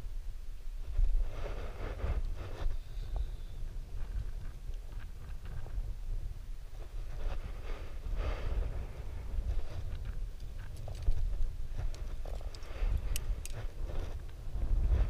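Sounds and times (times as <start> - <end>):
wind buffeting microphone: 0.8 - 15.0
climbing gear clicks: 9.9 - 14.4.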